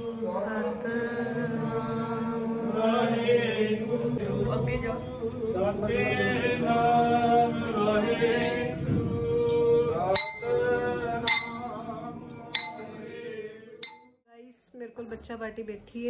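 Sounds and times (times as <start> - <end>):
voices singing a hymn: 0.0 - 14.0
sharp clinks: 12.6 - 13.0.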